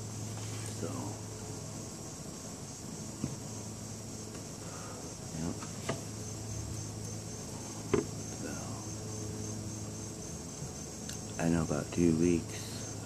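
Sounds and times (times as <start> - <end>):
crickets chirping: 0.0 - 13.0
short knocks: 7.9 - 8.1.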